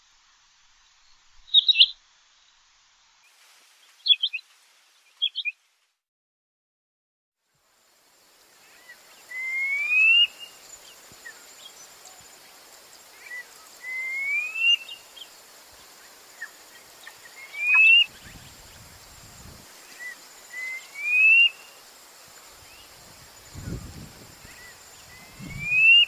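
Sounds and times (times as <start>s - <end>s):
faint natural background: 0.0s - 6.1s, 7.4s - 26.0s
quail rising whistles: 17.4s - 18.4s, 20.0s - 21.7s, 24.6s - 26.0s.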